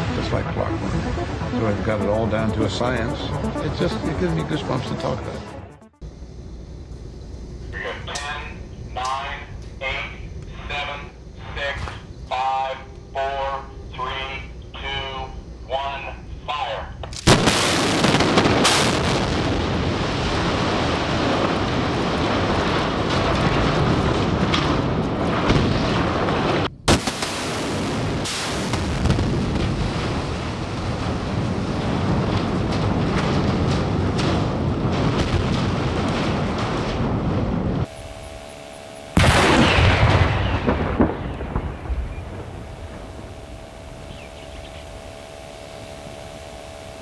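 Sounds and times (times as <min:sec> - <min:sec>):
steady tone: 0:00.0 - 0:06.5
demolition blast: 0:17.2 - 0:38.2, 0:39.1 - 0:44.1
rumble of collapsing structure: 0:17.4 - 0:27.0, 0:27.6 - 0:37.9.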